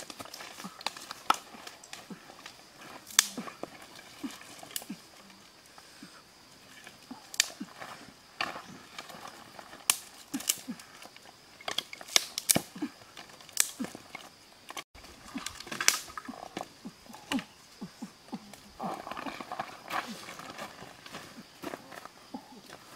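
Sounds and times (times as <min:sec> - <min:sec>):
dry sticks snapping: 0:00.0 - 0:04.9, 0:06.8 - 0:07.6, 0:08.4 - 0:17.5.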